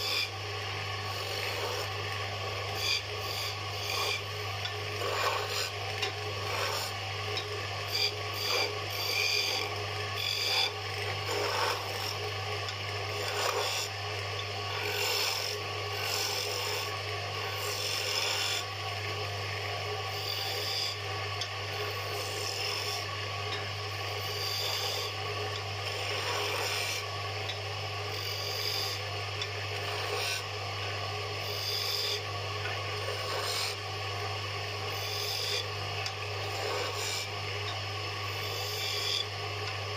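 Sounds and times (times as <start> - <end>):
chisel rasping on spinning wood: 0.0 - 18.7, 20.1 - 21.1, 21.7 - 23.1, 24.2 - 25.2, 25.8 - 27.1, 28.1 - 30.5, 31.4 - 33.9, 34.8 - 37.4, 38.3 - 39.3
lathe humming: 0.0 - 39.9.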